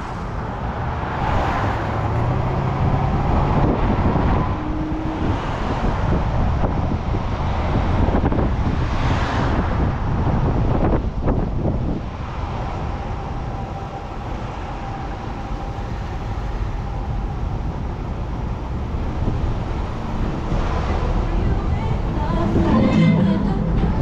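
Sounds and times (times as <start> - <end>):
road and tyre rumble: 0.0 - 24.0
wind rushing over microphone: 0.0 - 24.0.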